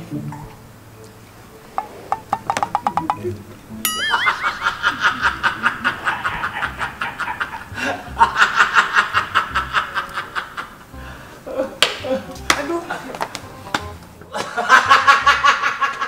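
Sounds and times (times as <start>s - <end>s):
cartoonish squeaky giggling: 3.9s - 8.4s.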